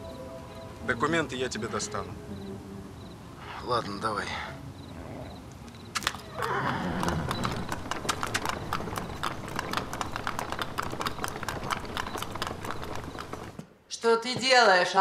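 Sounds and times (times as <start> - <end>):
hooves clip-clopping on hard surface: 5.6 - 14.8
horse whinnying: 6.0 - 13.4.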